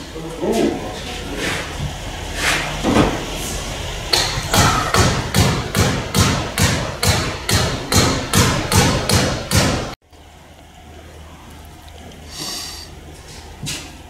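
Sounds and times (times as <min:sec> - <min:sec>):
sharp knocks like hammering: 0:04.1 - 0:10.0
low quiet hum: 0:10.1 - 0:14.0.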